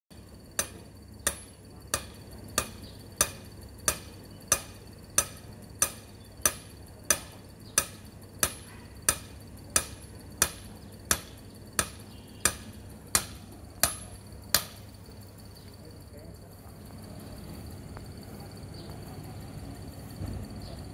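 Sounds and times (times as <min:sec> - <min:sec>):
hammer striking metal rod: 0:00.6 - 0:14.8.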